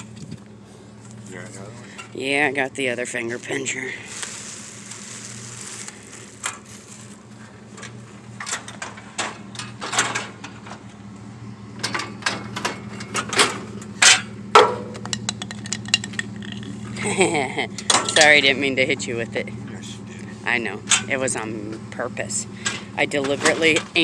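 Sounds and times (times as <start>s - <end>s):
steady low hum: 0.0s - 24.0s
metal pieces knocking and clanking: 11.8s - 16.8s.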